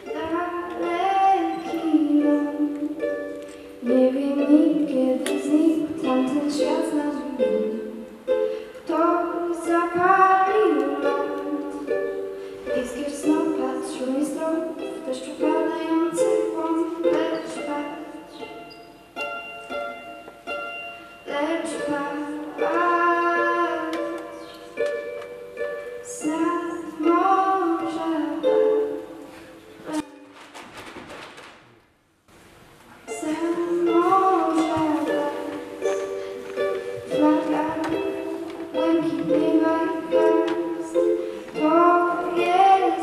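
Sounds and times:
woman singing: 0:00.0 - 0:03.1, 0:03.8 - 0:08.1, 0:08.8 - 0:18.3, 0:21.2 - 0:24.4, 0:26.0 - 0:29.1, 0:29.8 - 0:30.1, 0:33.1 - 0:36.1, 0:37.0 - 0:43.0
ukulele playing: 0:00.0 - 0:30.4, 0:33.0 - 0:43.0.

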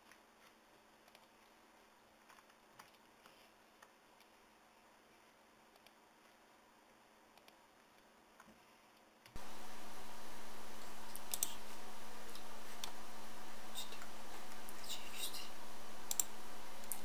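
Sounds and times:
microphone hiss and hum: 0:00.0 - 0:17.0
computer clicks: 0:10.1 - 0:17.0.

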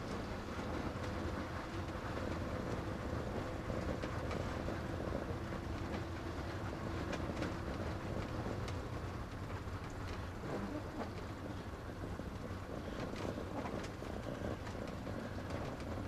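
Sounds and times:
engine low rumble: 0:00.0 - 0:16.0
faint steady hum: 0:00.0 - 0:16.0
rain and wipers ticking on glass: 0:00.0 - 0:16.0.

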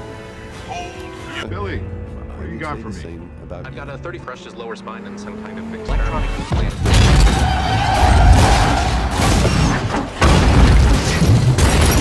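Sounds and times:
car crash impacts: 0:06.5 - 0:12.0.

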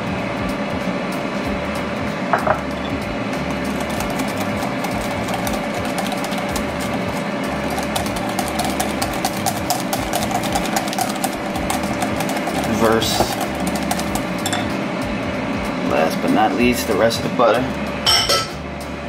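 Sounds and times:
fan-like hum: 0:00.0 - 0:19.0
whisk beating batter in bowl: 0:03.5 - 0:14.6
whisk tapping glass: 0:03.6 - 0:14.7.

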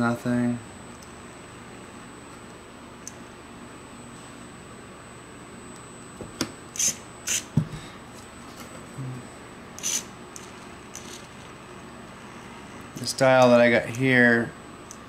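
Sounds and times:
servo whirring: 0:06.8 - 0:07.5, 0:09.8 - 0:11.4.

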